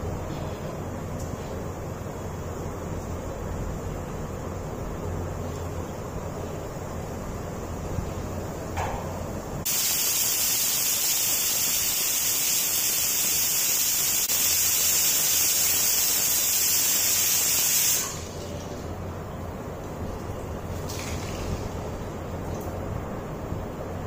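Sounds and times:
water spraying under pressure: 9.7 - 18.4.

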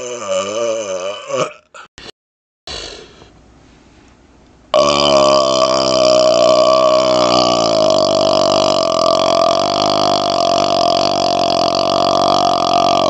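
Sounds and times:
man burping: 0.0 - 2.1, 4.8 - 13.0.

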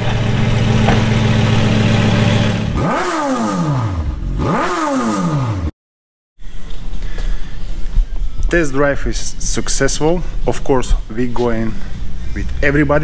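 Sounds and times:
car engine idling loudly: 0.0 - 2.8
engine revving: 0.0 - 5.7.

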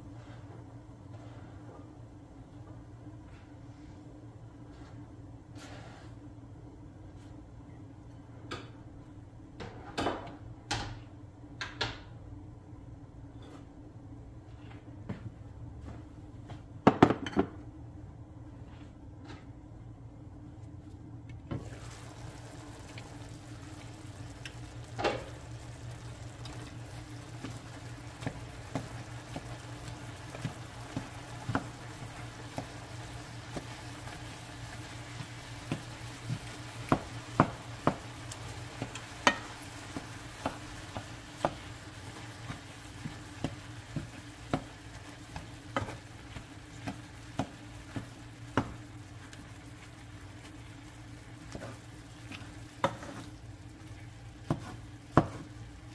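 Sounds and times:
meat sizzling in a skillet: 21.6 - 55.9
spatula tapping pan: 22.4 - 49.4, 51.5 - 53.3, 54.4 - 55.6
spatula scraping pan: 51.5 - 53.4.

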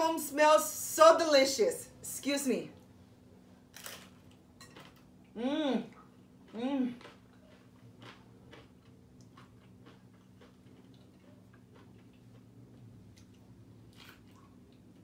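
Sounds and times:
low room hum: 0.0 - 15.0
person chewing crunchy food: 5.9 - 15.0.

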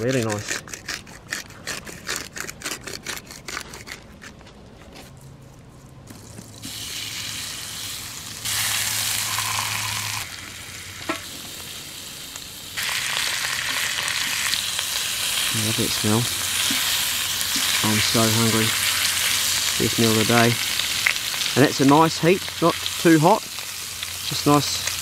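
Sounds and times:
fish sizzling on grill pan: 6.6 - 25.0.

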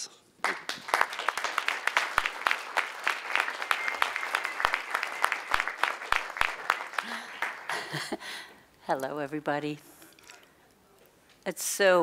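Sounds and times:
audience applause: 0.4 - 8.3.

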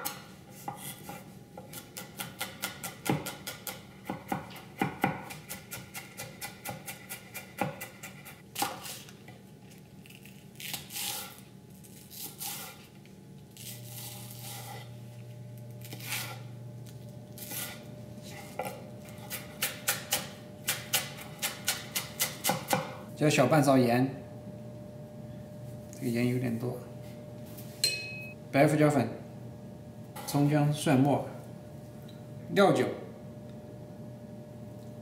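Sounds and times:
knife chopping on wooden board: 0.0 - 9.0, 17.4 - 23.0.

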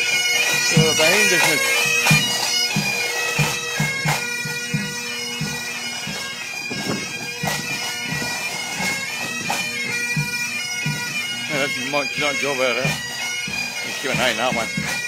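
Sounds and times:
bagpipes playing a tune: 0.0 - 15.0
low thumps: 6.6 - 8.3.

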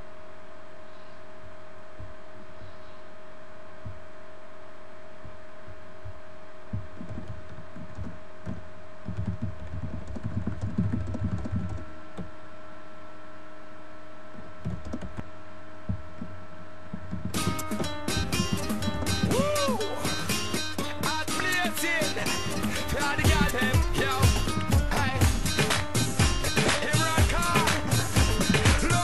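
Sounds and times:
electrical hum: 0.0 - 29.0
irregular low thumps: 5.2 - 11.8, 14.4 - 21.2, 22.3 - 29.0.

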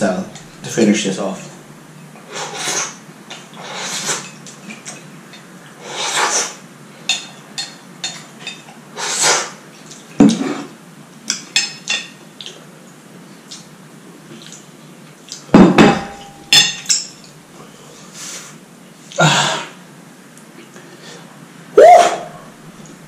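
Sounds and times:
noodle slurping: 2.3 - 3.0, 3.6 - 4.3.

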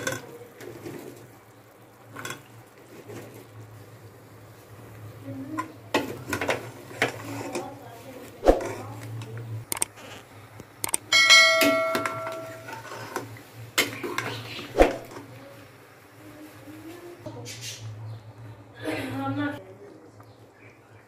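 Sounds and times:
pot ringing like a bell: 11.1 - 12.8.

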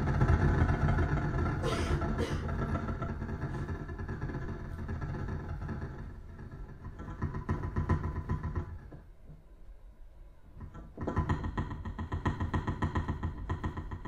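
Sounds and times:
amplified double bass: 0.0 - 6.2.

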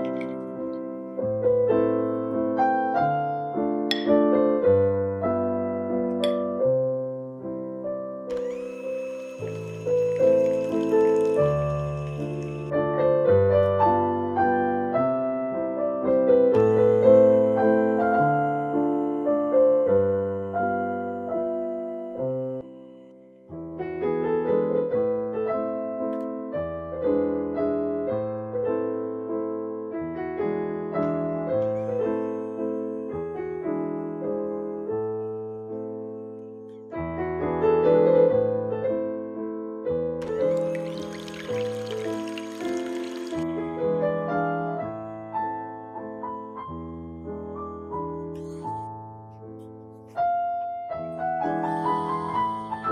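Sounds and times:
background piano music: 0.0 - 52.9.

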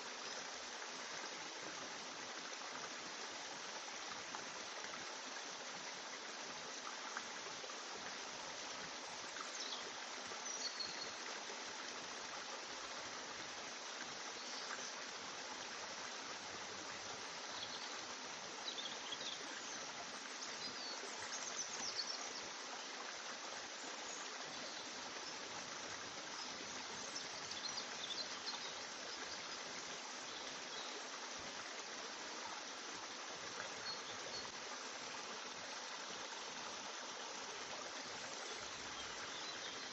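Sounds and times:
steady hiss: 0.0 - 39.9.

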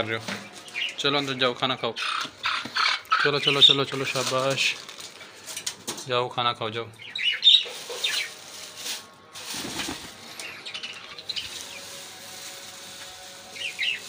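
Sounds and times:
birds chirping: 0.0 - 4.2, 6.6 - 8.5, 9.8 - 12.1, 13.5 - 14.0
plastic bag rustling: 3.3 - 5.8, 7.4 - 14.0
seed shaken out: 7.6 - 10.5, 11.2 - 14.0.

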